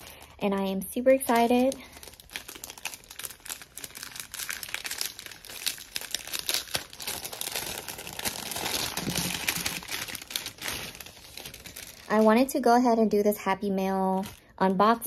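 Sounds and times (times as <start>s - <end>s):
paper envelope crinkling: 1.0s - 12.6s.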